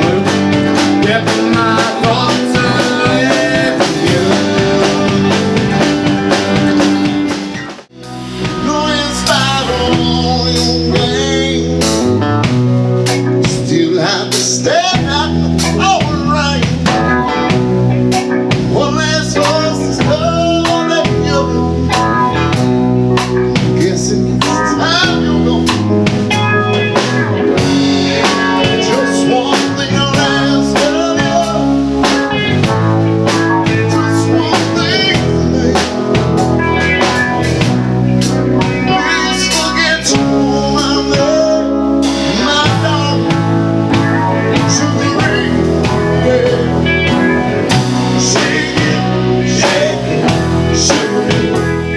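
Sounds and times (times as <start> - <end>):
live rock band playing: 0.0 - 51.9.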